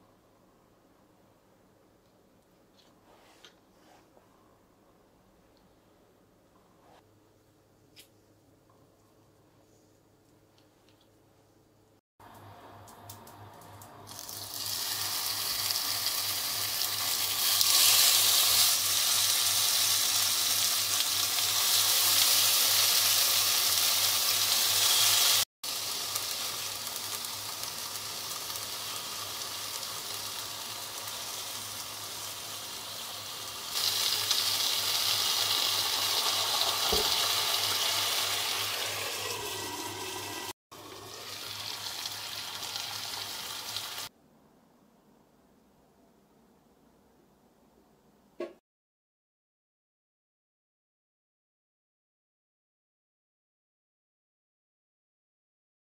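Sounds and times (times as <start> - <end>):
meat sizzling in a frying pan: 14.1 - 44.1.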